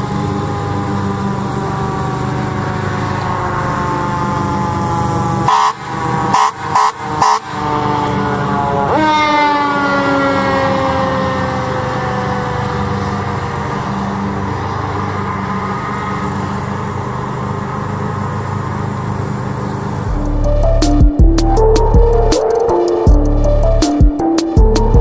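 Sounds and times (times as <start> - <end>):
fire engine siren: 0.0 - 25.0
truck engine rumble: 0.0 - 25.0
air horn blasts: 5.4 - 11.2.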